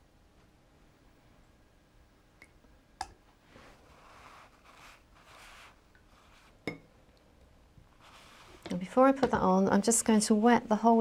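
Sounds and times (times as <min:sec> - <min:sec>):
soft paintbrush strokes: 0:03.4 - 0:06.6, 0:07.8 - 0:09.2.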